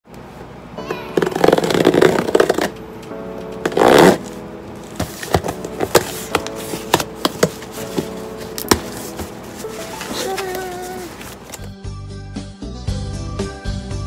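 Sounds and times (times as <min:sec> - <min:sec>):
soft background music: 0:00.7 - 0:14.0
packaging clicks and taps: 0:05.0 - 0:09.2.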